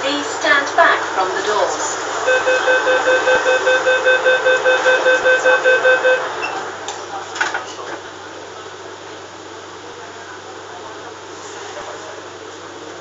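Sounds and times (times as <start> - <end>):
train car hum: 0.0 - 13.0
train door warning beeps: 2.2 - 6.6.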